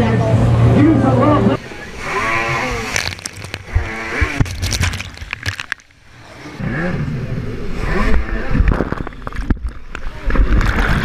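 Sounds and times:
water splashing: 1.6s - 6.6s
jet ski engine revving: 1.6s - 9.3s.

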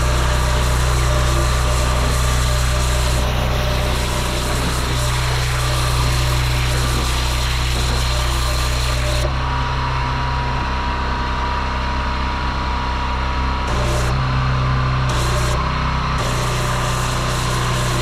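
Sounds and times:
hissing water jet spray: 0.0s - 9.2s
pressure washer engine humming: 0.0s - 18.0s.

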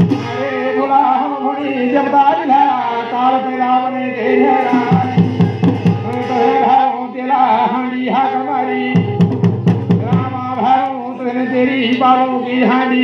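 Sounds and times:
hand-played drum strokes: 0.0s - 1.0s, 4.6s - 7.0s, 8.9s - 10.8s
man chanting devotional song: 0.0s - 13.0s.

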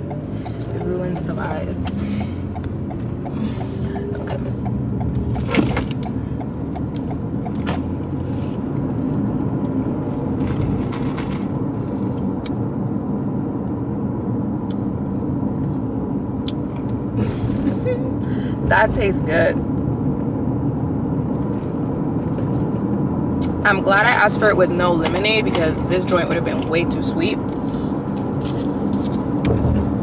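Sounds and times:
car low rumble: 0.0s - 30.0s.

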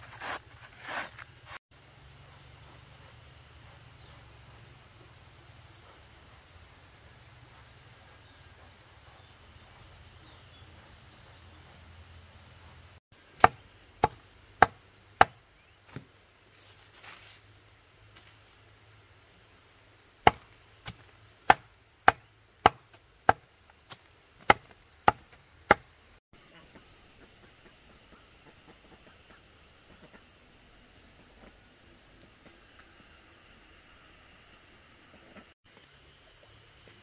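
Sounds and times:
low outdoor background: 0.0s - 37.0s
knife chopping on wooden board: 13.4s - 16.0s, 20.3s - 23.4s, 24.4s - 25.8s.

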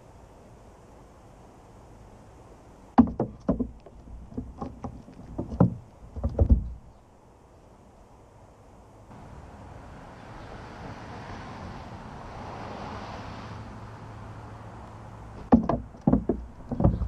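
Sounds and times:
squirrel feet on plastic lid: 3.0s - 7.0s, 15.4s - 17.0s.

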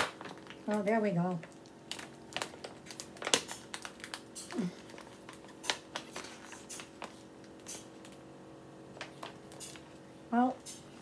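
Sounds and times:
plastic candy bag crinkling: 0.0s - 8.2s.

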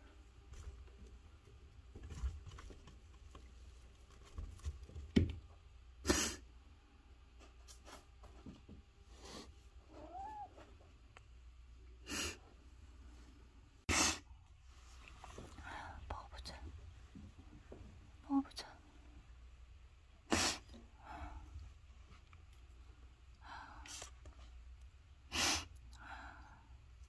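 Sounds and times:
cat meowing: 9.9s - 10.6s.

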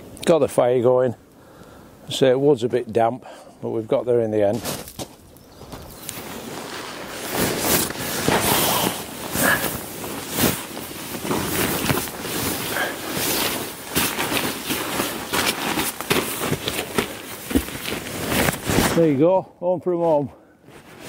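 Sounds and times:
fabric rustling and crinkling: 4.4s - 19.1s, 20.7s - 21.0s.

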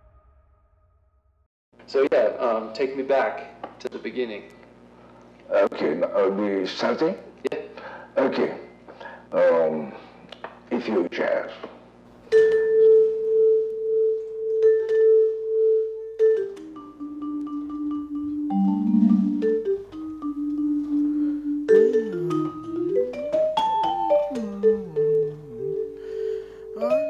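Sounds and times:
vibraphone played with mallets: 14.5s - 27.0s.

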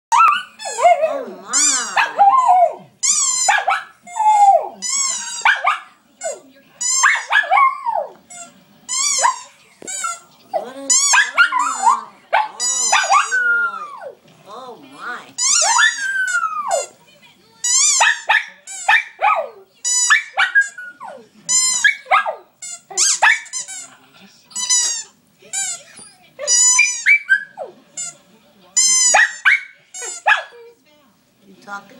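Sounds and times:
dog howling: 0.1s - 2.9s
dog howling yelps: 0.1s - 4.8s, 7.0s - 8.1s, 12.9s - 14.2s, 15.5s - 16.8s.

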